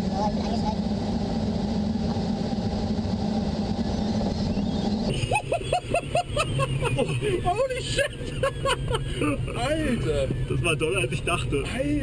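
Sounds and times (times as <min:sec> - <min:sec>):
rush of airflow: 0:00.0 - 0:05.9.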